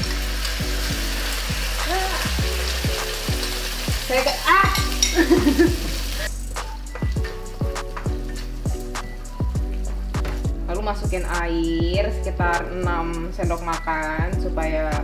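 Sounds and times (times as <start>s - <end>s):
sauce sizzling in a frying pan: 0.0s - 10.6s
background music with light beat: 0.0s - 15.0s.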